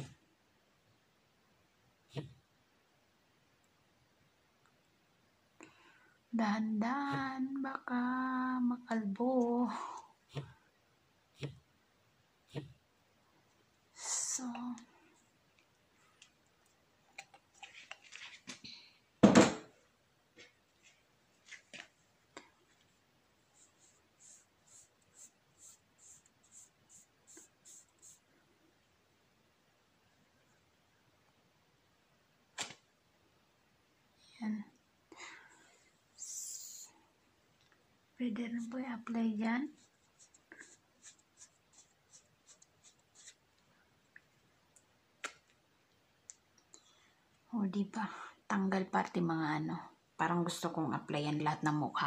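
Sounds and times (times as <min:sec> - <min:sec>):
fingers rubbing cloth strip: 0:12.5 - 0:12.8
fingertips rubbing wax strip: 0:39.7 - 0:43.4.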